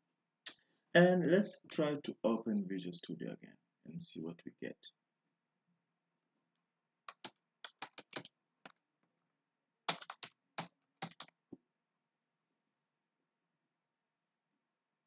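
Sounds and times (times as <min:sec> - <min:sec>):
computer keyboard typing: 0:07.1 - 0:08.8, 0:09.9 - 0:11.4.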